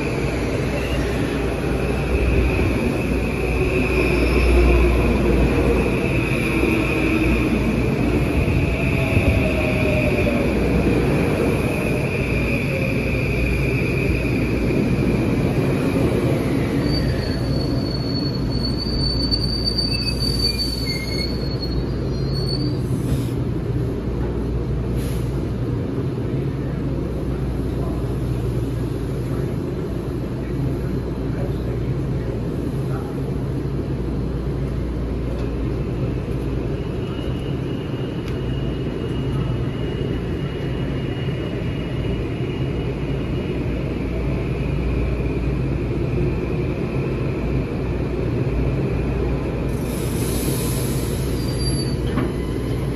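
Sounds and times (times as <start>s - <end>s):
train brake squeal: 16.6s - 23.4s, 49.7s - 52.9s.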